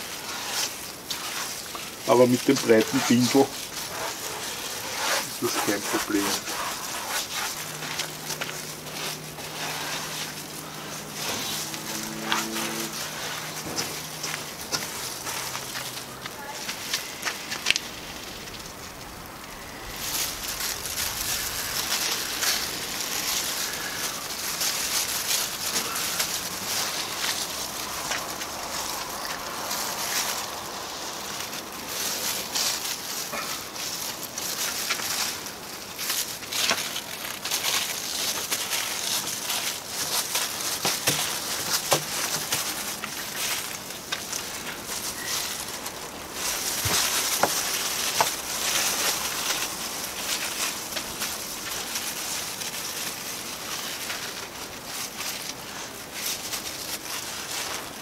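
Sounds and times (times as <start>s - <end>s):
fiberglass cloth rustling: 0.0s - 58.0s.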